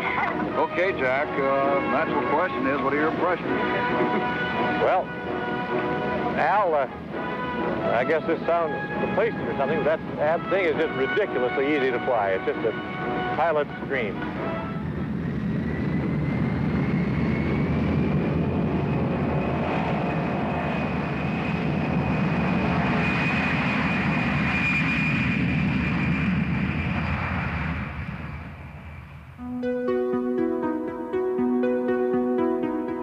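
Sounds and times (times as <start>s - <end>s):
music: 0.0s - 15.0s, 29.4s - 33.0s
jet engines whining: 0.0s - 33.0s.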